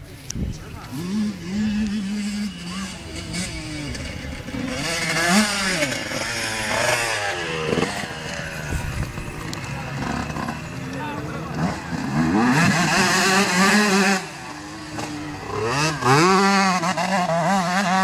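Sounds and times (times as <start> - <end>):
dirt bike engine revving: 0.7 - 18.0.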